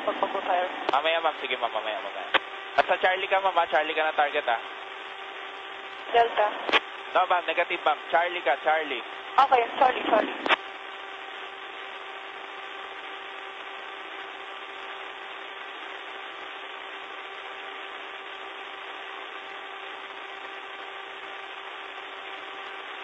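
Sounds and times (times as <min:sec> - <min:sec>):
aircraft engine noise over intercom: 0:00.0 - 0:01.0.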